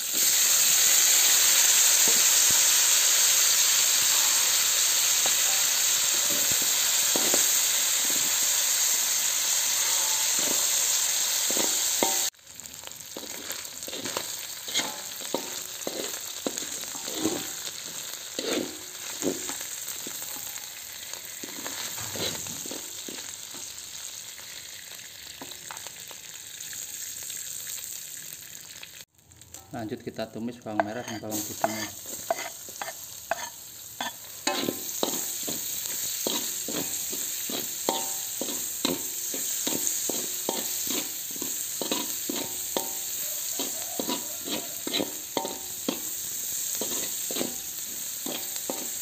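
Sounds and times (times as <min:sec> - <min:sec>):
fish sizzling in hot oil: 0:00.0 - 0:49.0
metal spatula scraping wok: 0:00.1 - 0:08.9, 0:09.5 - 0:12.3, 0:13.2 - 0:20.2, 0:21.2 - 0:23.7, 0:30.7 - 0:49.0.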